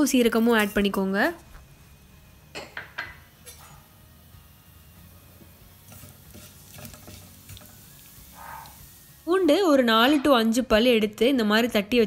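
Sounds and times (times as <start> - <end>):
seeds frying in hot oil: 0.0 - 10.1
spatula scraping a metal pan: 5.9 - 8.8.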